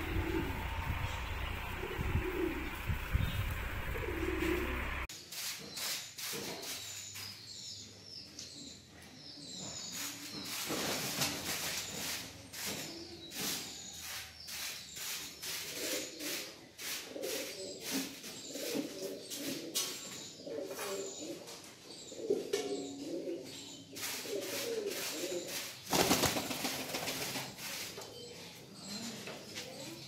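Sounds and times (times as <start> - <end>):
pigeons cooing: 0.0 - 5.1, 15.5 - 26.6.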